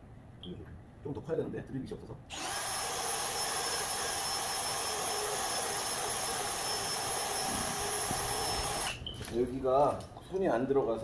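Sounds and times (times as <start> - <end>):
cordless drill boring into plastic: 2.3 - 9.0.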